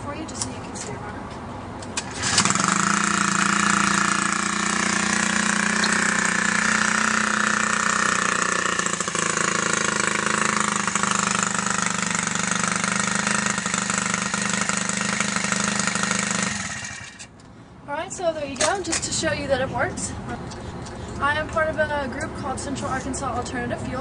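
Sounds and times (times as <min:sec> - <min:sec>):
small engine idling: 0:02.0 - 0:17.3.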